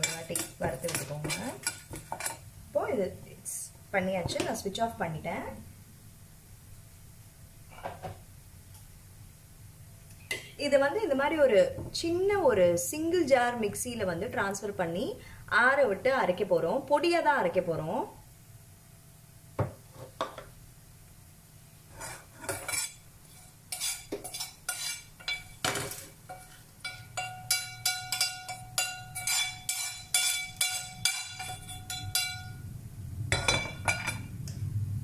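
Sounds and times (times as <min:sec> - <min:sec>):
steel spoon scraping frying pan: 0:00.0 - 0:02.5, 0:21.9 - 0:32.6, 0:33.3 - 0:34.3.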